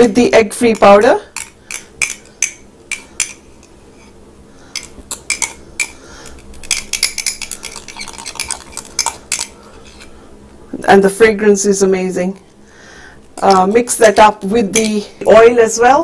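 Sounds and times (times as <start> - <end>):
metal spoon clinking on ceramic: 6.6 - 9.6.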